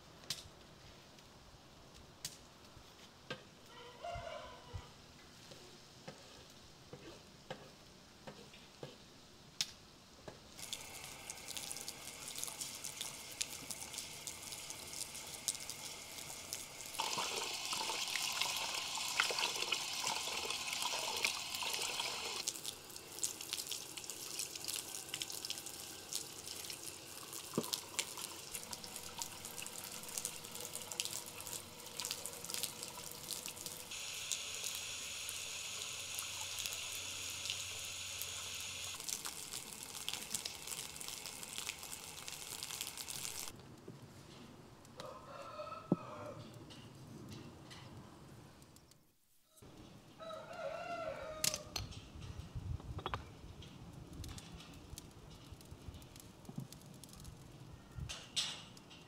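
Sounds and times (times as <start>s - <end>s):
tap water pouring into metal pot: 10.6s - 43.5s.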